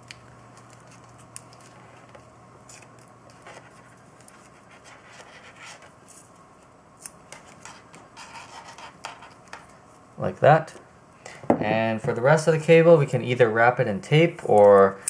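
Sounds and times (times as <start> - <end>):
tape crinkling and scratching: 0.0 - 9.7.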